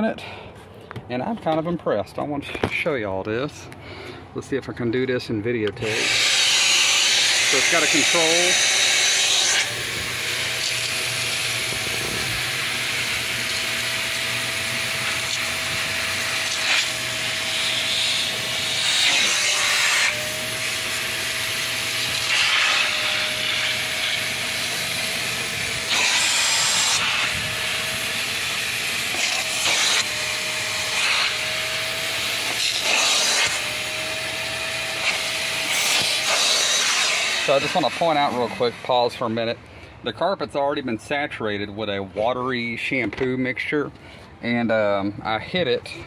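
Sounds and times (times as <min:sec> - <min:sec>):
wet dry vacuum whining: 0:02.8 - 0:40.7.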